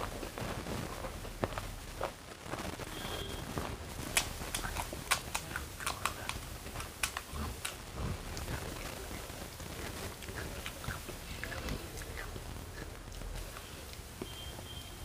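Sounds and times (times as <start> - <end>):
crisp shells cracking: 3.5 - 14.2.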